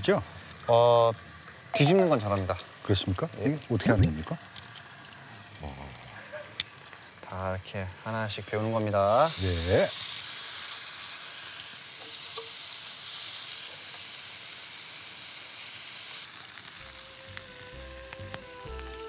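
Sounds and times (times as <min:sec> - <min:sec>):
meat sizzling on a grill pan: 0:00.0 - 0:19.0
background music: 0:16.8 - 0:19.0.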